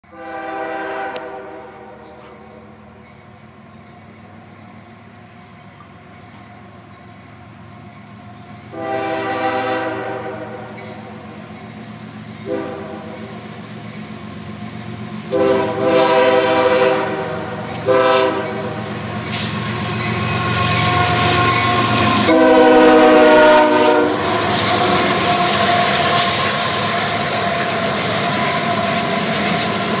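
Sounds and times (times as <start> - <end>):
locomotive air horn blasts: 0.0 - 2.2, 8.7 - 10.8, 12.4 - 13.3, 15.3 - 18.9, 19.7 - 26.4
locomotive engines: 0.0 - 30.0
train wheels clacking on rails: 1.0 - 30.0.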